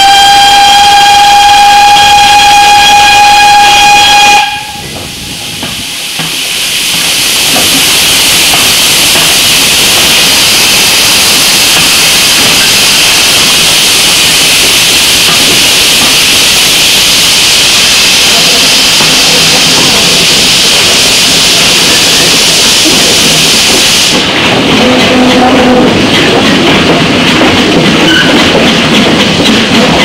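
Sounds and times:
steam locomotive whistle: 0:00.0 - 0:05.0
loud steam hiss: 0:00.0 - 0:30.0.

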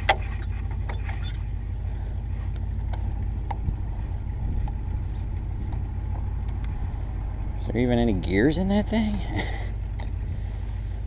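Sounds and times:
wind rumble on microphone: 0:02.9 - 0:08.5, 0:09.9 - 0:11.0.

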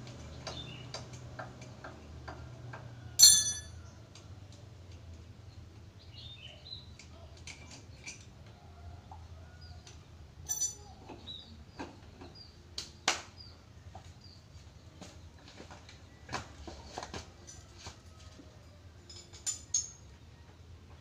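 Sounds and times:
hand tools clicking and clinking: 0:03.2 - 0:03.8, 0:10.5 - 0:11.2, 0:19.0 - 0:20.1.

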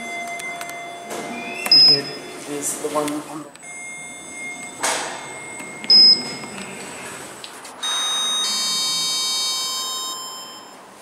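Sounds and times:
lift arrival chime: 0:00.0 - 0:02.8, 0:03.6 - 0:07.0, 0:07.8 - 0:11.0
button beep: 0:00.3 - 0:02.2, 0:04.6 - 0:06.6.

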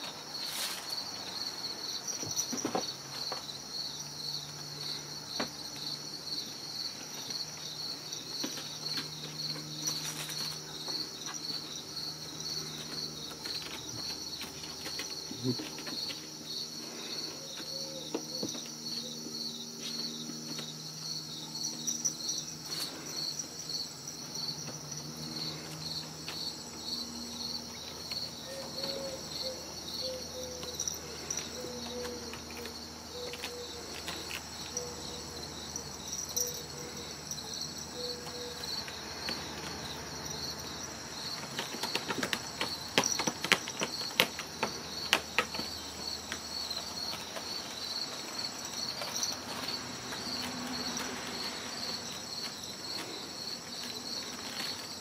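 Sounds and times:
insects chirping: 0:00.0 - 0:55.0
sharp scratches and knocks: 0:41.2 - 0:55.0.

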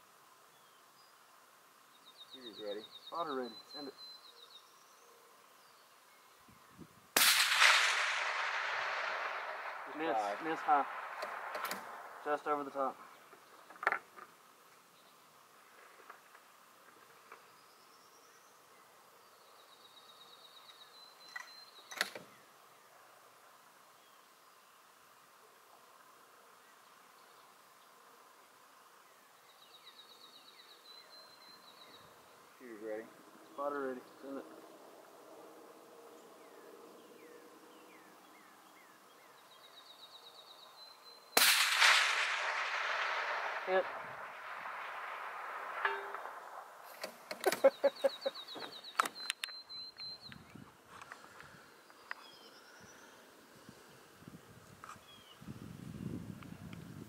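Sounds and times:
bird chirping: 0:00.4 - 0:06.9, 0:17.0 - 0:23.2, 0:26.6 - 0:41.4, 0:43.6 - 0:53.9
suppressed rifle shot: 0:07.2 - 0:12.4, 0:41.3 - 0:47.7
sharp click: 0:11.2 - 0:11.9
high rapid bird trill: 0:47.5 - 0:50.3.

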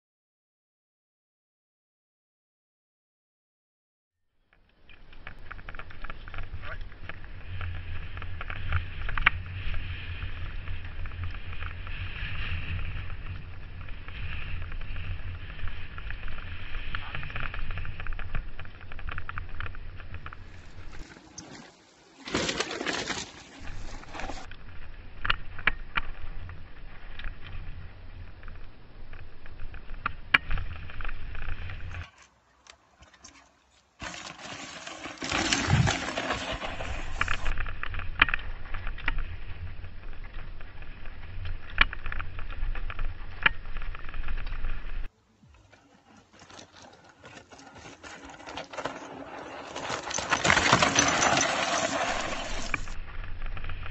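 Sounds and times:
wind rumbling on microphone: 0:04.9 - 0:21.0, 0:35.6 - 0:45.1
bike clattering over stones: 0:05.0 - 0:24.5, 0:34.0 - 0:45.1, 0:46.2 - 0:53.9.

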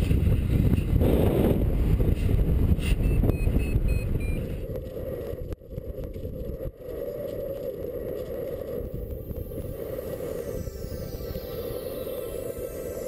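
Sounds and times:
wind buffeting microphone: 0:00.0 - 0:13.0
short high electronic beeps: 0:03.0 - 0:04.5.

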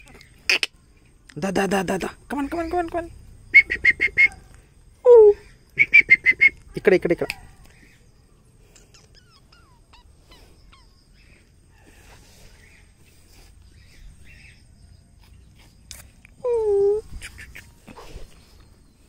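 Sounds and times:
faint high chirps: 0:02.3 - 0:19.0
puppy whining: 0:08.8 - 0:11.1.

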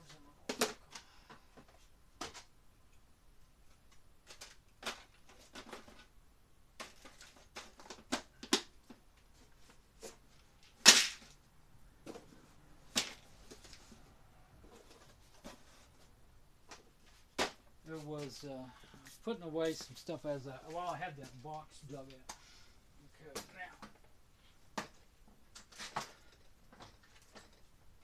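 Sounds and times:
small items clicking and clattering: 0:03.7 - 0:06.1.

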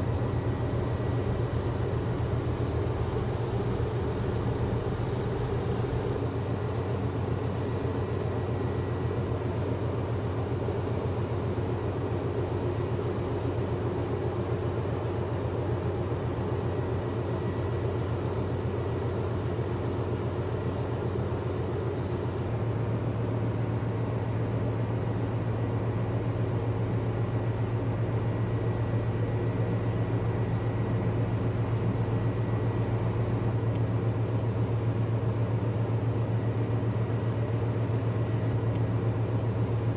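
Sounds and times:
container ship engine drone: 0:00.0 - 0:39.9.

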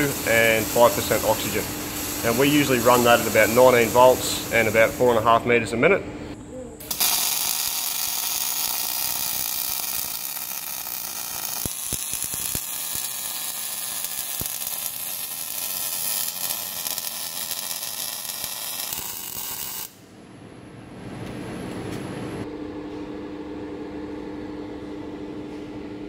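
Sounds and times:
welding arc sizzling crackle: 0:00.0 - 0:05.4, 0:06.8 - 0:20.0.

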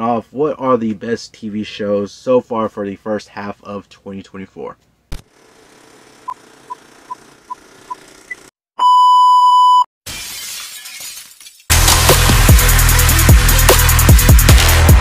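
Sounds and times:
loud steady beep: 0:08.8 - 0:09.9
glass shattering crash: 0:10.1 - 0:12.6
electronic music with heavy drums: 0:11.7 - 0:15.0.

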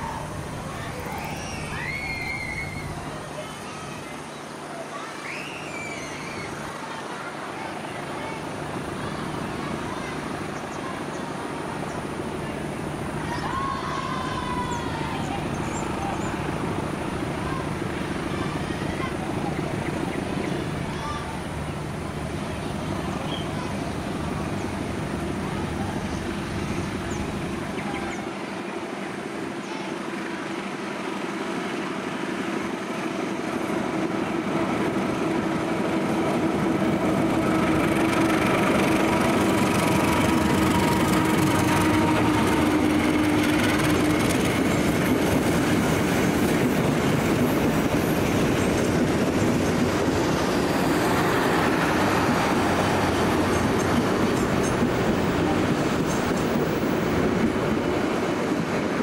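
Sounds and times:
locomotive engine running: 0:00.0 - 0:05.1, 0:06.4 - 0:59.0
train wheels clacking over rail joints: 0:35.9 - 0:57.8.

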